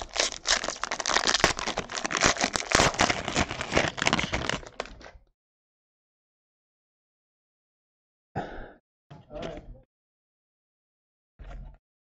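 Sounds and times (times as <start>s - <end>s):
plastic wrappers crinkling: 0.0s - 5.1s.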